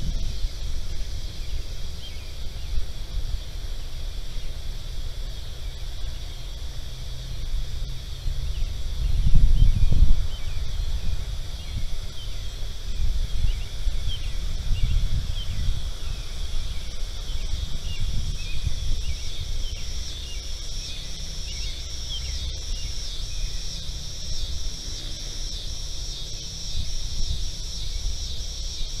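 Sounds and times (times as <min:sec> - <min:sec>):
insect high-pitched trill: 0:00.0 - 0:29.0
pulsing insect call: 0:00.0 - 0:29.0.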